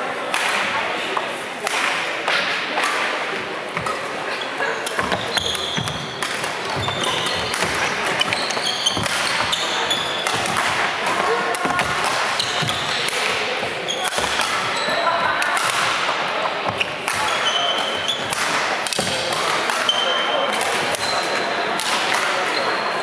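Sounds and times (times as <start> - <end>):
background chatter: 0.0 - 23.0
rackets hitting shuttlecock: 0.3 - 0.8, 1.6 - 4.2, 4.8 - 22.6
shoes squeaking on floor: 3.8 - 10.6, 11.7 - 15.3, 16.8 - 18.4, 19.8 - 21.6.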